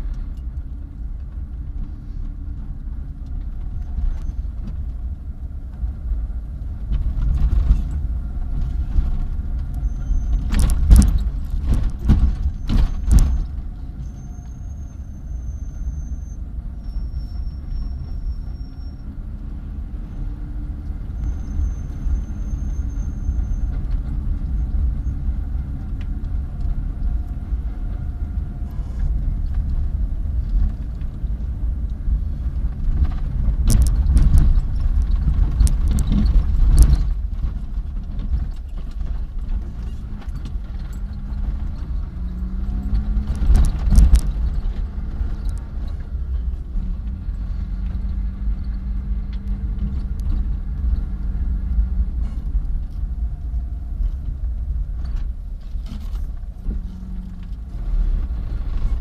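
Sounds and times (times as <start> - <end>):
car engine and road rumble: 0.0 - 59.0
sharp clicks and knocks: 8.6 - 13.7, 29.0 - 53.2.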